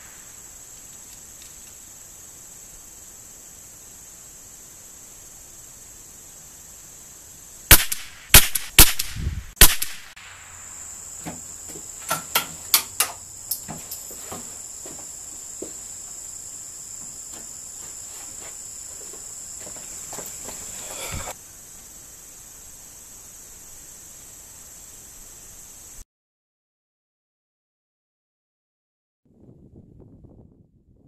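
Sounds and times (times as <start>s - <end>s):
rifle shots: 7.7s - 10.6s.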